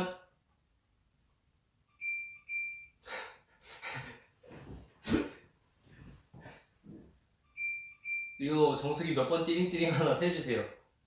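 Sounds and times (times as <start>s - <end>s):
electronic chime beep: 1.9s - 2.9s, 7.5s - 8.4s
man laughing quietly: 3.1s - 5.2s.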